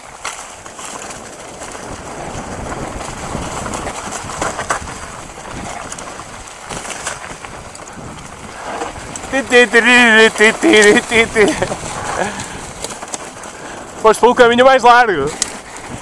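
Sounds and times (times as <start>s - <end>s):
wind noise on microphone: 0.0s - 14.0s, 15.1s - 16.0s
bike rattling over bumps: 0.0s - 16.0s
bike tyres rolling over dirt: 0.0s - 16.0s.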